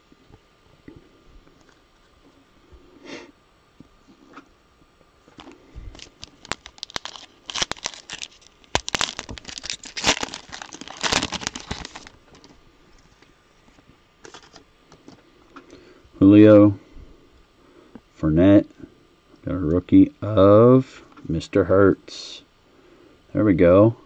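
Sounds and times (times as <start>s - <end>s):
wrapper tearing and crinkling: 5.3s - 13.3s, 14.2s - 14.6s.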